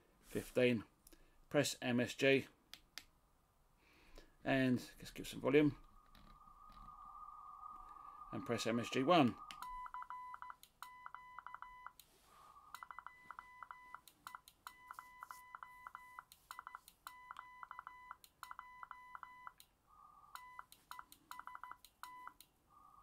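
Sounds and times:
soft hiss: 0.0s - 9.9s, 12.0s - 12.9s
morse code beeps: 9.3s - 12.0s, 12.7s - 19.6s, 20.4s - 22.4s.

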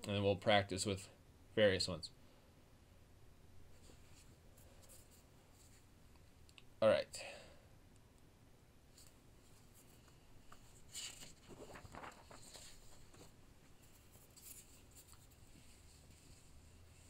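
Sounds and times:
faint rustling: 3.6s - 6.3s, 8.9s - 17.0s
soft handling noises: 3.6s - 6.6s, 8.9s - 17.0s.

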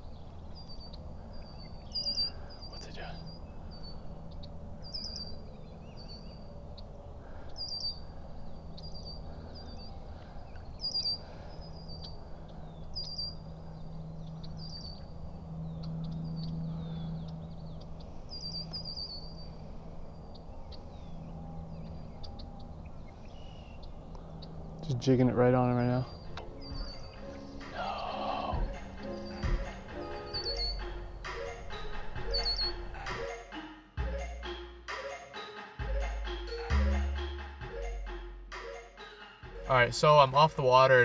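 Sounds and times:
small birds chirping: 0.0s - 33.0s
low steady hum: 0.0s - 33.2s.

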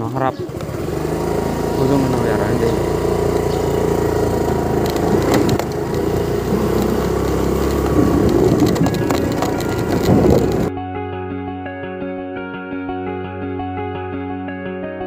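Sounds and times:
motor scooter engine running: 0.0s - 10.7s
knocks and rattles from bumps: 1.7s - 10.7s.

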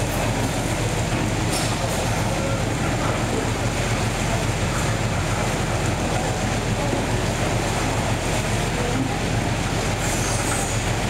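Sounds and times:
fish market rumble: 0.0s - 11.0s.

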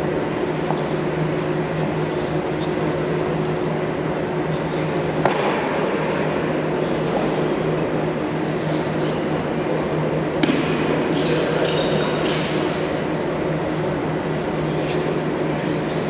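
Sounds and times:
sports hall hum: 0.0s - 16.0s.

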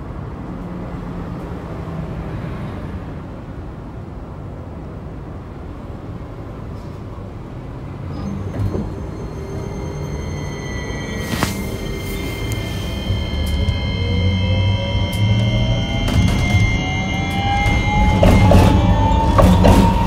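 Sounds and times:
tram wheels rumbling on rail: 0.0s - 20.0s
low motor hum: 8.1s - 20.0s.

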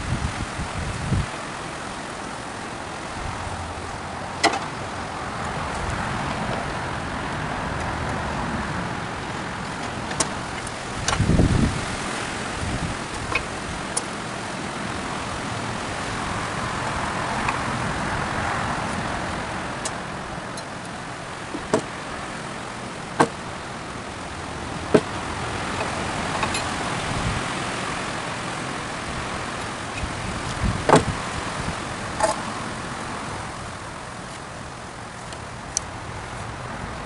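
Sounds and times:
distant road traffic: 0.0s - 37.0s
tools knocking on wooden beam: 23.2s - 23.4s.

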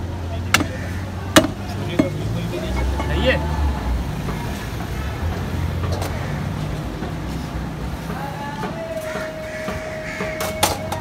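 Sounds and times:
street traffic rumbling: 0.0s - 11.0s
long steady tone: 2.5s - 3.7s.

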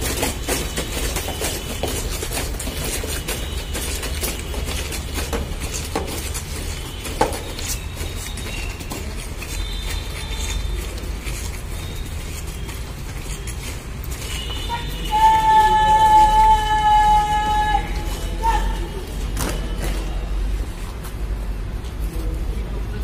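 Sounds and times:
boots marching on paved road: 0.0s - 23.0s.

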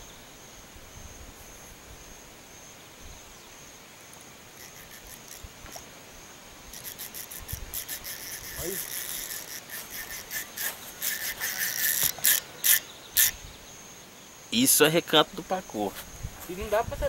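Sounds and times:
insects trilling: 0.0s - 17.0s
faint high ticks: 4.1s - 5.9s, 6.7s - 13.4s.

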